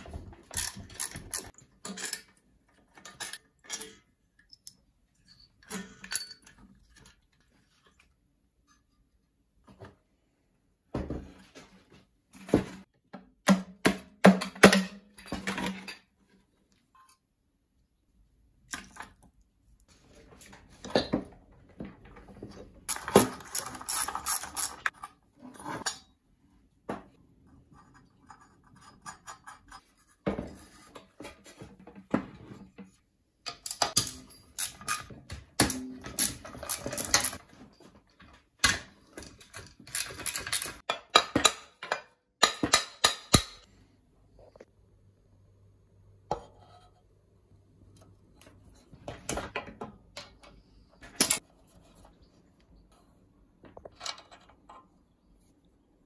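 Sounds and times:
metal tools clinking and clattering: 0.2s - 7.2s, 22.4s - 26.1s, 35.8s - 37.4s, 39.2s - 41.0s.

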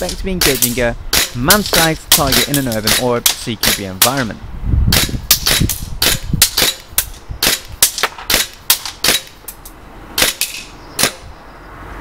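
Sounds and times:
airsoft pistol shots: 0.4s - 4.2s, 4.9s - 9.4s, 10.2s - 11.2s.

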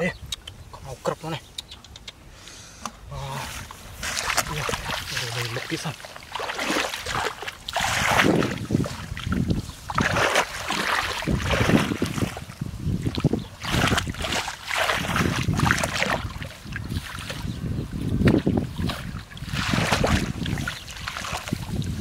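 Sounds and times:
shallow water splashing: 3.8s - 17.6s, 18.3s - 22.0s.

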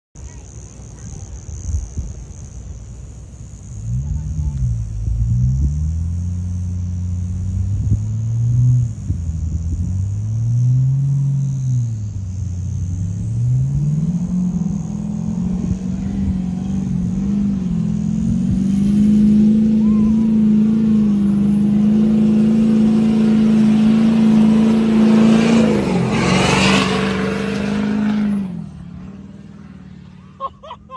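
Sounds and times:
diesel truck engine under load: 0.2s - 30.9s
truck passing by: 2.4s - 30.9s.

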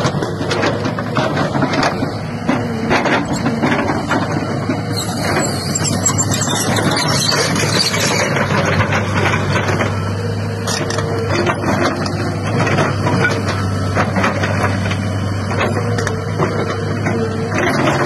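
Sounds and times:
excavator diesel engine hum: 0.0s - 18.0s
hydraulic whines: 3.1s - 8.8s.

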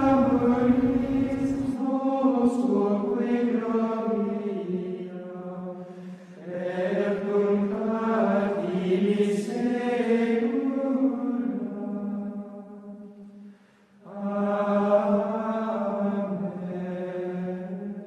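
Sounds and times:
men singing plainchant: 0.0s - 4.0s.

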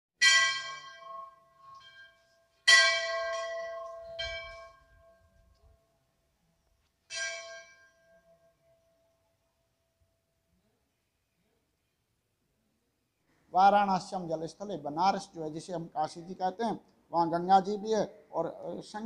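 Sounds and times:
temple bell clanging: 0.2s - 5.4s, 7.1s - 8.6s.

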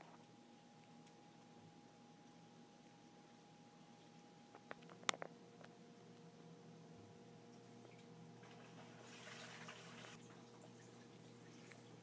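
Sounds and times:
ceiling fan motor humming: 0.0s - 12.0s.

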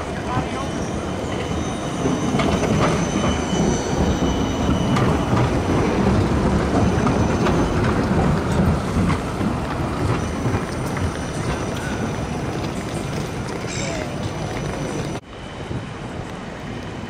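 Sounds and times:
tram wheels rumbling over rails: 0.0s - 17.0s
high-pitched wheel squeal: 0.3s - 5.7s.

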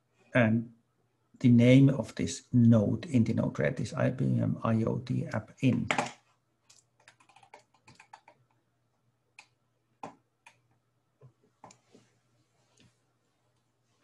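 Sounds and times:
keyboard and mouse clicks: 5.9s - 8.6s, 9.4s - 11.8s.

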